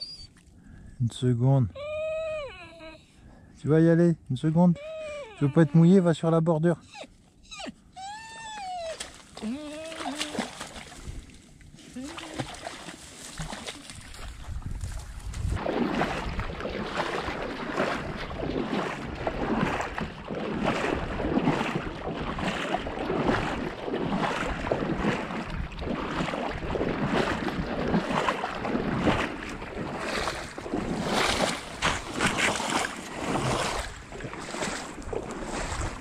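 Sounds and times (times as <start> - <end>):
wading steps sloshing in water: 8.6 - 36.0.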